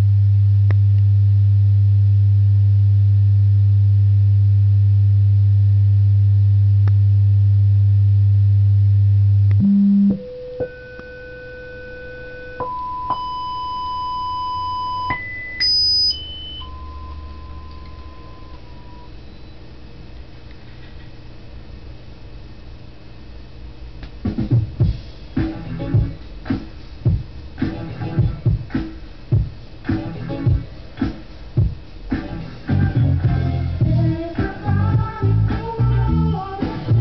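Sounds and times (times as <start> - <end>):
loudspeaker test tones: 9.6 - 19.1.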